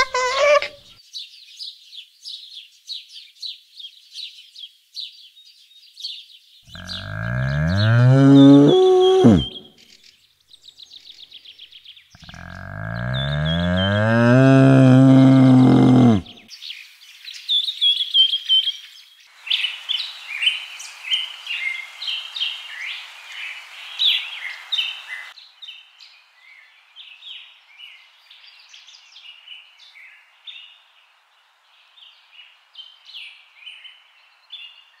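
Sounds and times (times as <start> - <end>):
eagle piping chatter: 0.0 - 0.8
sharp bird chirps and squeaks: 0.0 - 0.8.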